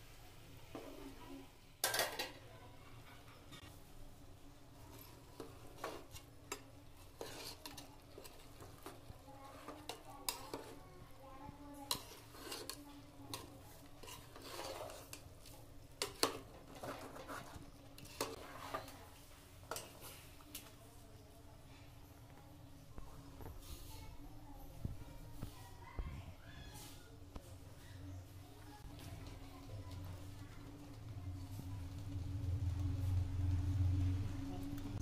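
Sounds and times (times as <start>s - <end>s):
metal spoon scraping metal pot: 5.0s - 8.9s, 11.9s - 15.3s, 16.0s - 19.0s.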